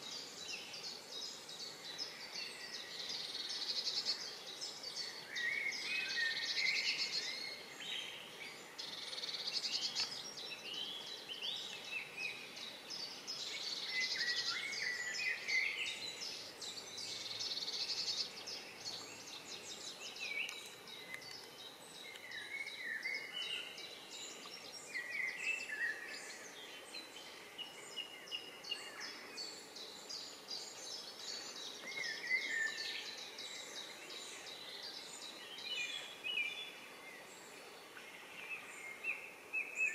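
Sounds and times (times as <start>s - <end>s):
songbirds singing: 0.0s - 39.9s
steady background hiss: 0.0s - 39.9s.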